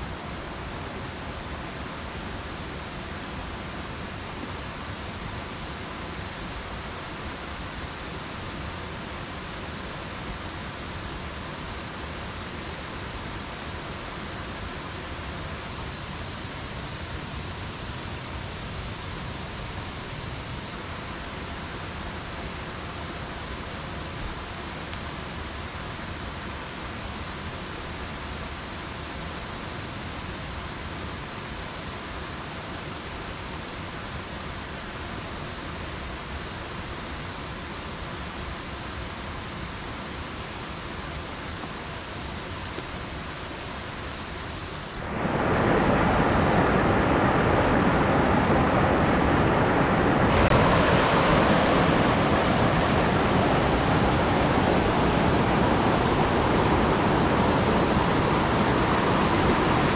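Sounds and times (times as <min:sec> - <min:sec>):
soft outdoor ambience hiss: 0:00.0 - 0:59.9
loud steady rushing noise: 0:43.0 - 0:59.9.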